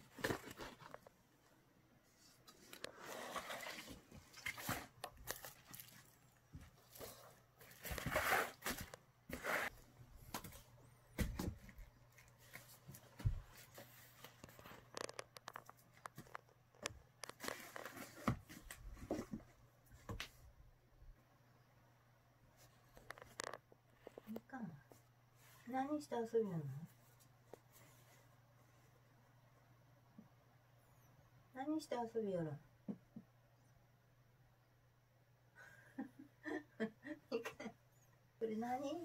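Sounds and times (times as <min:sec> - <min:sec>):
cat scratching bubble wrap: 0:02.0 - 0:09.9, 0:17.2 - 0:19.3.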